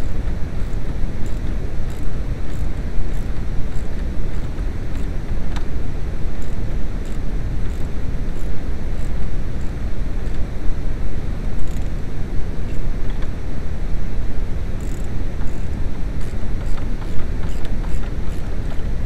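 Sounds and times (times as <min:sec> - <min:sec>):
ratchet wrench clicks: 0:00.6 - 0:05.1, 0:14.8 - 0:18.5.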